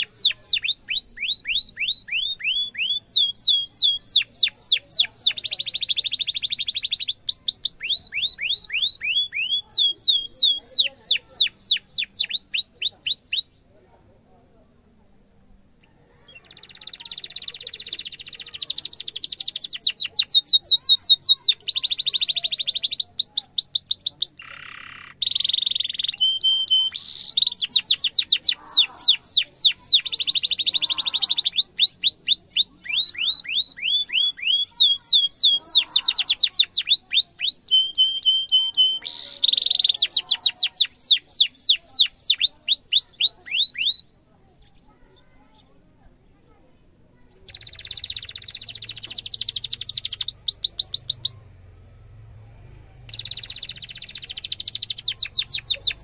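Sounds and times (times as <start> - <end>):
canary singing trills: 0.0 - 13.8, 15.2 - 46.6, 47.2 - 56.0.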